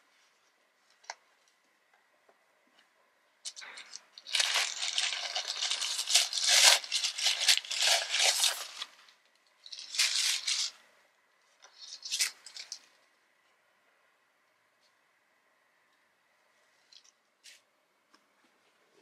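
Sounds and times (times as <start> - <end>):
tissue paper crinkling: 3.5 - 10.8, 11.7 - 12.8.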